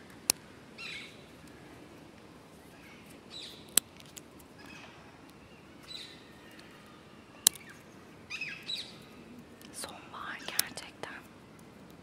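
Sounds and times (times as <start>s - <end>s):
dry twig cracking: 0.0s - 0.5s, 3.0s - 6.7s, 7.4s - 7.8s, 9.6s - 10.8s
faint bird chirps: 4.6s - 11.6s.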